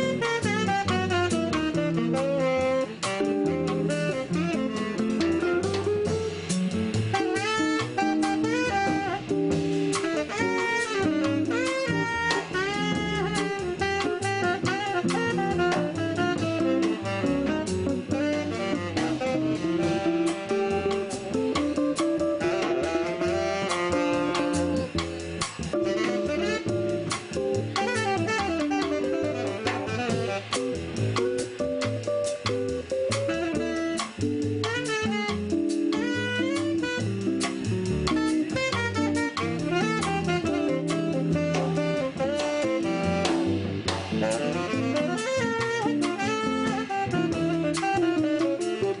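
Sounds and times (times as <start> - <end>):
drum kit with cymbals: 0.0 - 49.0
guitar playing: 0.0 - 49.0
sustained lead melody: 0.0 - 49.0
upright double bass: 0.0 - 49.0.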